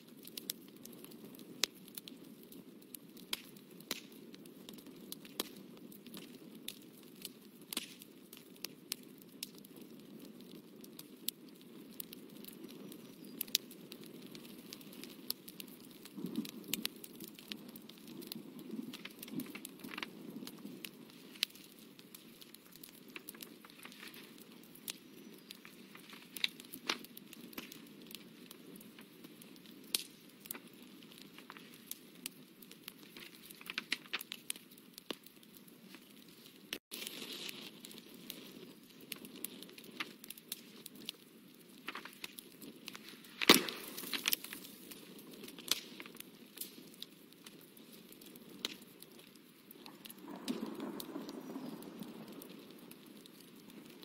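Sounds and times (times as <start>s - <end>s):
paper crackling: 41.9s - 42.3s, 42.9s - 44.7s.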